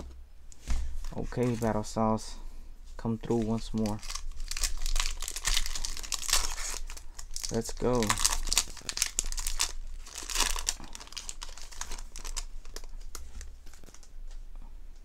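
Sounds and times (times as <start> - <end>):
foil wrapper crinkling: 3.2 - 14.1.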